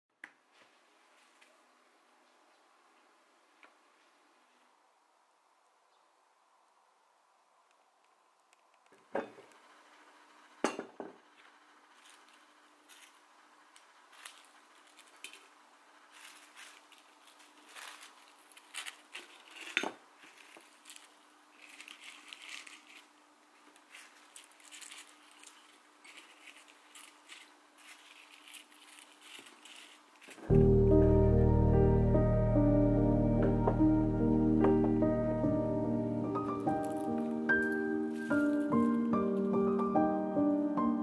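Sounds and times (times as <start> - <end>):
dried flowers crackling in glass jar: 11.9 - 30.5, 36.4 - 39.8.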